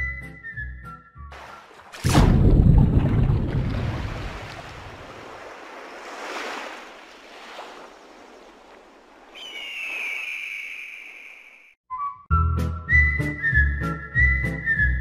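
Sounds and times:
water rushing and surging: 0:01.3 - 0:10.3
high whistling tone: 0:09.3 - 0:15.0.

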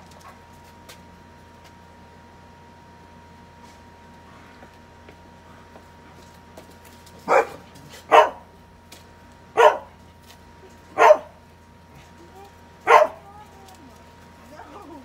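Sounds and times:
dog barking: 0:07.3 - 0:08.4, 0:09.6 - 0:09.9, 0:11.0 - 0:11.4, 0:12.8 - 0:13.2.

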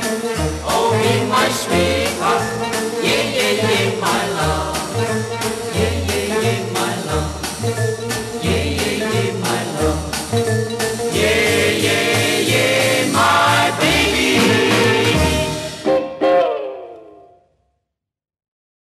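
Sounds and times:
person singing: 0:00.0 - 0:07.4, 0:08.4 - 0:10.0, 0:11.1 - 0:17.1
harmonised voices: 0:00.0 - 0:16.0.

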